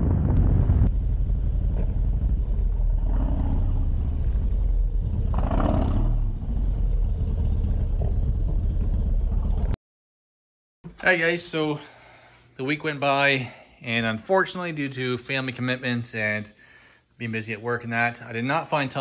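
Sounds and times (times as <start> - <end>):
motorcycle engine running: 0.1 - 9.8.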